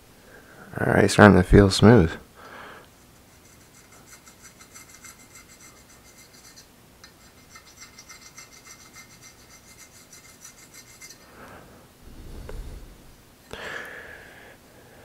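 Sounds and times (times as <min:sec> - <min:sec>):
razor blade scraping metal: 0:03.3 - 0:11.3.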